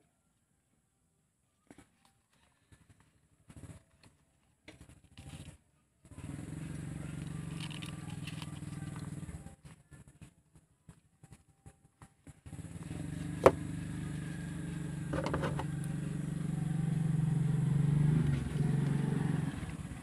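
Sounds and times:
vehicle engine humming: 6.2 - 9.6, 12.3 - 20.0.

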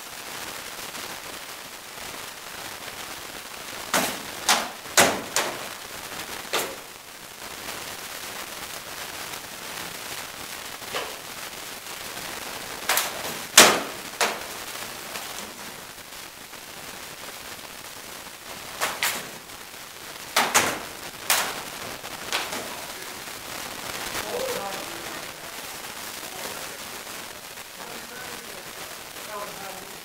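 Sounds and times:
rattan swords striking shields: 3.9 - 5.6.

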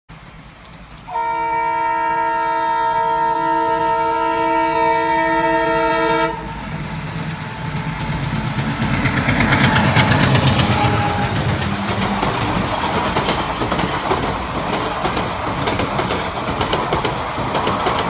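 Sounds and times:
locomotive horn blast: 1.1 - 6.6, 9.9 - 11.6.

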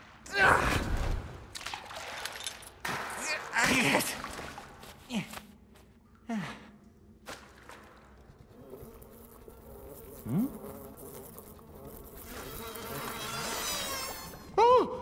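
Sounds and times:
faint buzzing drone: 8.4 - 14.5.

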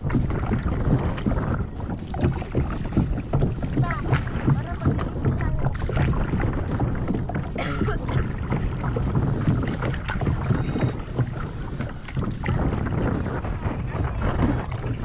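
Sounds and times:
kayak paddle splashing: 0.0 - 15.0
water sloshing against hull: 0.0 - 15.0
wind buffeting microphone: 0.0 - 15.0.

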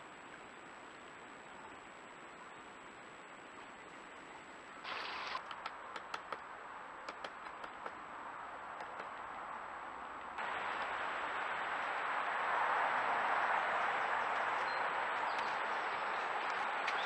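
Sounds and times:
faint hiss: 0.0 - 8.7
woodpecker ticks: 5.4 - 8.0, 8.7 - 9.4, 14.3 - 17.0.

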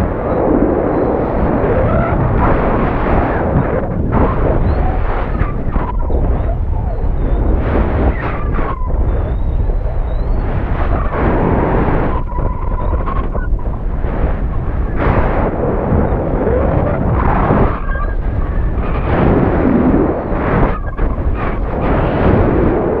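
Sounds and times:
wind buffeting microphone: 0.0 - 23.0
faint whistle: 4.3 - 11.1, 11.9 - 13.6.

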